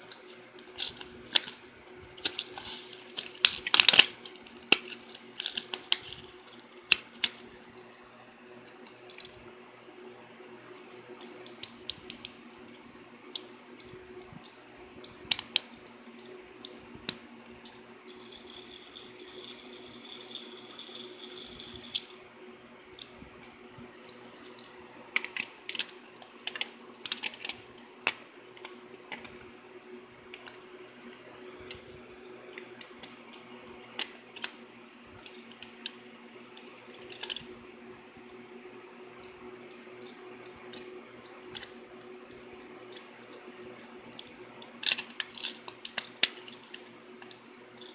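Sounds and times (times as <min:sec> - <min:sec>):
batteries clicking and clattering: 0:00.0 - 0:09.4, 0:24.0 - 0:29.4, 0:32.5 - 0:34.6, 0:35.2 - 0:37.6, 0:39.2 - 0:47.9.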